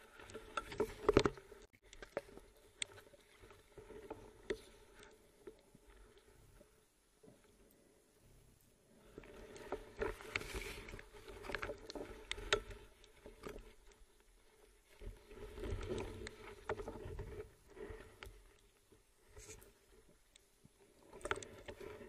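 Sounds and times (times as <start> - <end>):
muffled underwater movement: 0.0 - 22.0.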